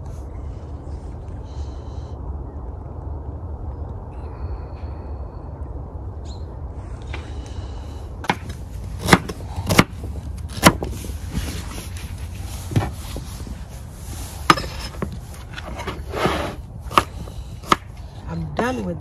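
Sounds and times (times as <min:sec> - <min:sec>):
knife chopping on wooden board: 0:09.0 - 0:09.9.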